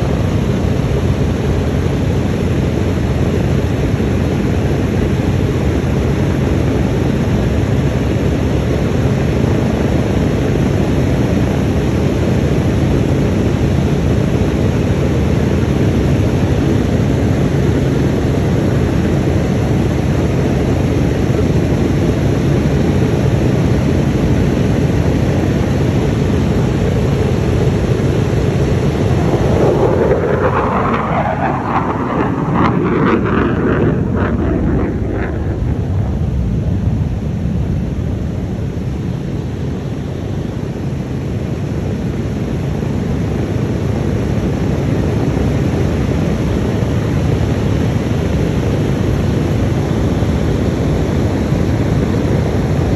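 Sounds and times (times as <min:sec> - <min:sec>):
wind buffeting microphone: 0:00.0 - 0:39.4
piston aircraft engines rumbling: 0:00.0 - 0:52.9.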